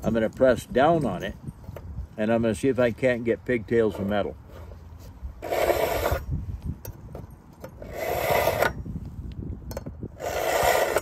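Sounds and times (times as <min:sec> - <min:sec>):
knife scraping through sharpener: 0:05.4 - 0:06.2, 0:10.2 - 0:11.0.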